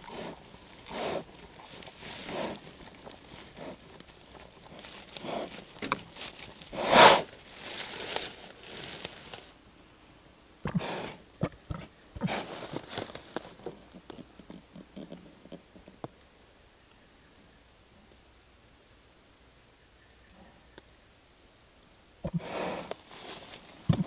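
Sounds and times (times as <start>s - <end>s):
bear sniffing and snuffling: 0.0s - 9.5s, 10.6s - 16.0s, 22.2s - 24.0s
leaves rustling: 0.0s - 9.6s, 12.2s - 15.4s, 21.8s - 24.0s.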